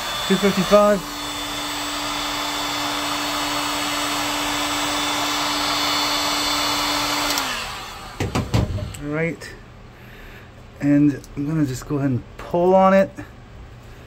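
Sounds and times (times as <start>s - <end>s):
heat gun hum and air rush: 0.0s - 9.6s.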